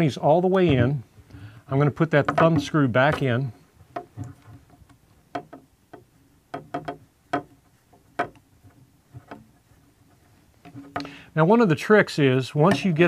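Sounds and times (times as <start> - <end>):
handling knocks on mount frame: 2.2 - 4.4.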